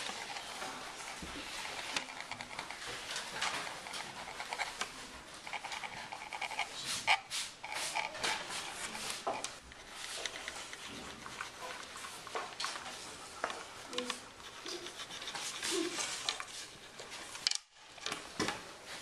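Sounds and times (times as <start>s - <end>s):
pencil scratching on paper: 0.0s - 12.2s, 14.4s - 17.2s.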